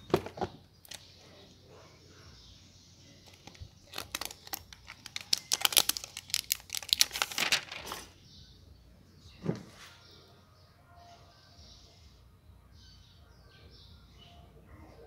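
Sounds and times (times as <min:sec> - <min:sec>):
plastic film crackling: 0:03.2 - 0:08.1.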